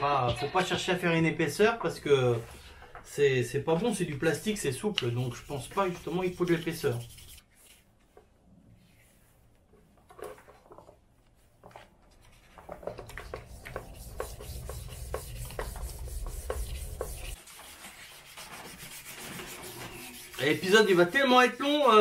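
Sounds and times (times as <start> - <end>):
sandpaper rubbing plastic: 4.3 - 7.8, 13.1 - 22.0.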